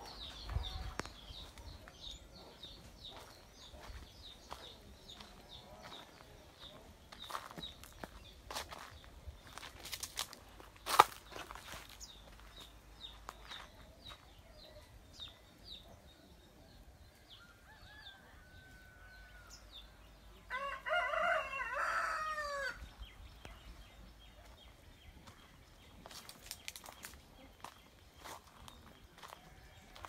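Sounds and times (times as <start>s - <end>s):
rooster crowing: 17.4s - 19.6s, 20.5s - 22.8s.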